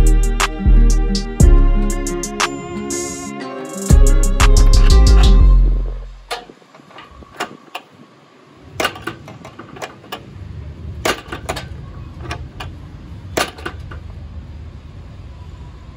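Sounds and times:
low steady rumble: 0:00.0 - 0:02.4, 0:03.9 - 0:06.4
metal latch clicking and clanking: 0:06.3 - 0:08.0, 0:08.8 - 0:10.3, 0:11.0 - 0:12.8, 0:13.4 - 0:14.0.

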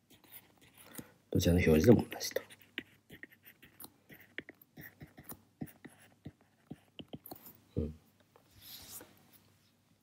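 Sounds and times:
stylus tapping on tablet screen: 0:02.8 - 0:07.4.

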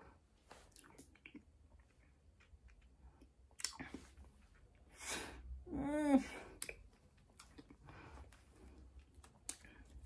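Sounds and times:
wet mouth clicks: 0:00.7 - 0:04.1.

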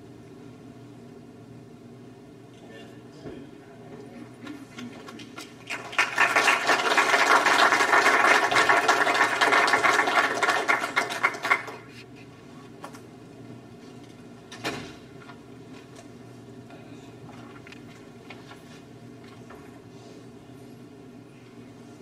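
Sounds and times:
congregation applauding: 0:05.6 - 0:11.9.

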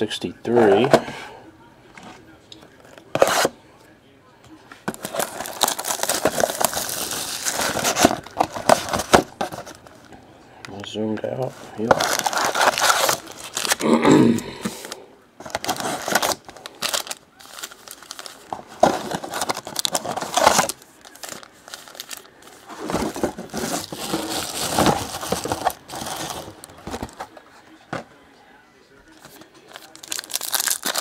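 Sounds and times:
cardboard tearing: 0:04.9 - 0:09.8, 0:11.8 - 0:13.9, 0:15.5 - 0:27.3, 0:29.7 - 0:31.0
foil packs crinkling: 0:04.9 - 0:10.1, 0:11.4 - 0:13.9, 0:15.4 - 0:27.4, 0:29.3 - 0:31.0.

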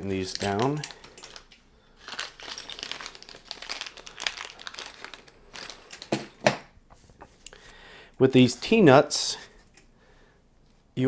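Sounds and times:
plastic packaging crinkling: 0:00.0 - 0:06.4.

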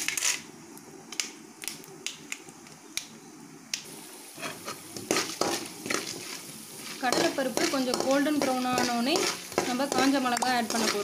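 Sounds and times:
oil sizzling: 0:03.8 - 0:11.0
seeds popping in hot oil: 0:04.6 - 0:11.0.

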